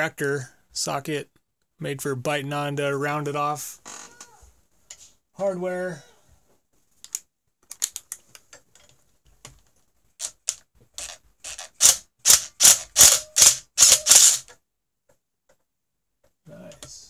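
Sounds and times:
impact driver hammering: 0:11.8 - 0:14.4.

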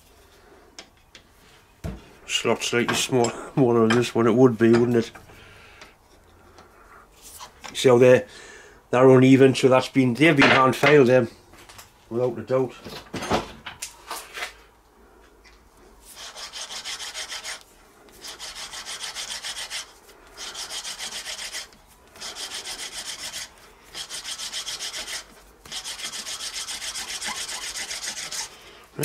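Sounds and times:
gritty rubbing of valve lapping: 0:20.3 - 0:28.6.

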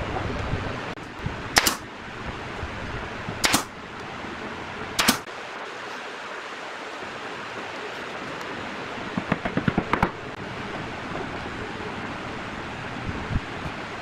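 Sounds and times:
nail gun firing: 0:01.6 - 0:01.8, 0:03.4 - 0:03.7, 0:05.0 - 0:05.3.

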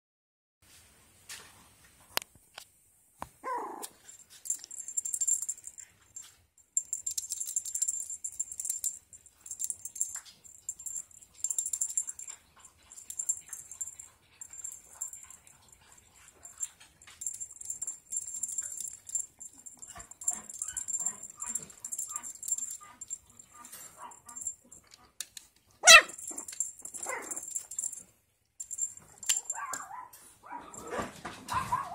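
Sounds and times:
puppy yelp: 0:03.4 - 0:04.0, 0:19.8 - 0:24.5, 0:25.8 - 0:27.5, 0:29.4 - 0:31.9.

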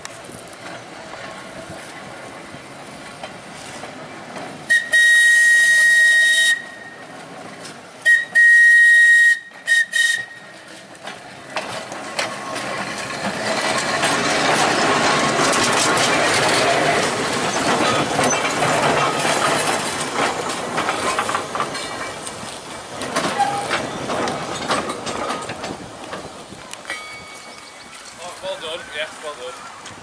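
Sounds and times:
tram running on rails: 0:00.0 - 0:30.0
tram whistle blasts: 0:04.6 - 0:07.1, 0:08.0 - 0:10.8.

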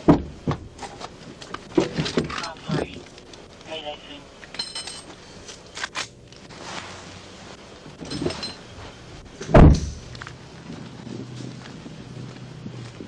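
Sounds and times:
heavy thunk: 0:00.0 - 0:00.7, 0:09.4 - 0:10.2
metallic jingle: 0:04.6 - 0:05.1, 0:08.0 - 0:08.7.

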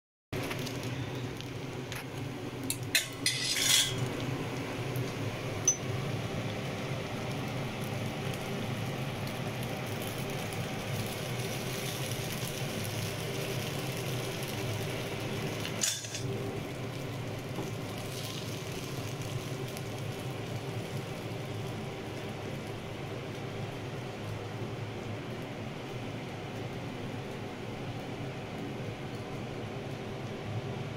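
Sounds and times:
utensils clinking on a wok: 0:02.7 - 0:04.1, 0:15.8 - 0:16.3.

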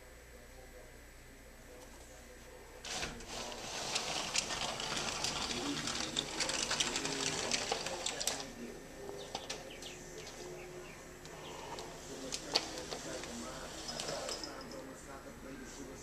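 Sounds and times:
sliding glass door rattling: 0:02.8 - 0:08.6, 0:11.8 - 0:14.8.

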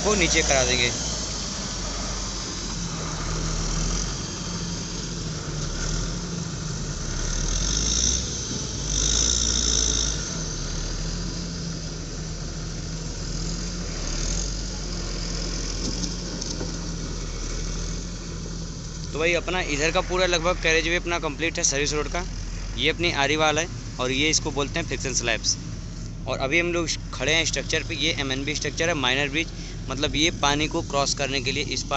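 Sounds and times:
motor grader diesel engine: 0:00.0 - 0:31.9.

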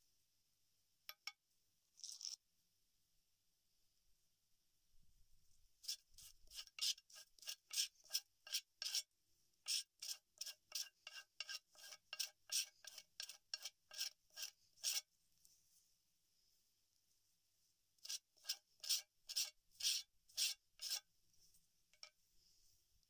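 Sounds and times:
scraper rasping along a leaf: 0:05.8 - 0:15.1, 0:18.0 - 0:21.1.

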